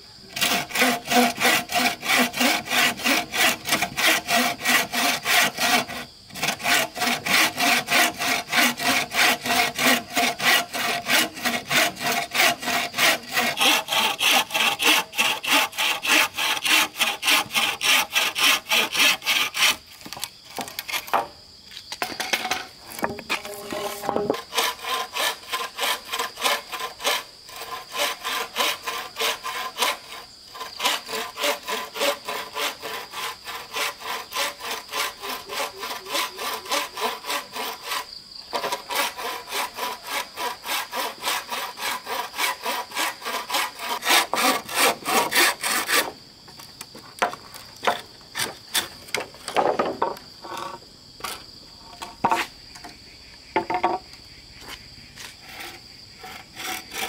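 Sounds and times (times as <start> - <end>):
high insect drone: 0.0 - 57.0
saw cutting bamboo: 0.3 - 21.3, 23.0 - 46.2, 55.2 - 57.0
knocks and scrapes: 0.9 - 24.8, 38.5 - 39.3, 43.1 - 57.0.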